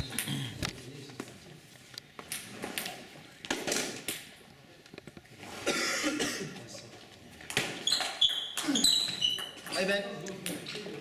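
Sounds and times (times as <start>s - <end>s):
person coughing: 5.6s - 6.6s.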